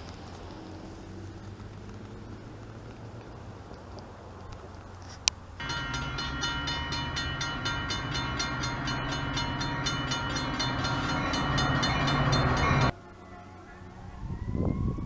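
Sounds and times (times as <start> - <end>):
even ringing bell: 5.6 - 13.2
steady tones: 5.6 - 13.7
diesel locomotive rumbling: 5.6 - 14.2.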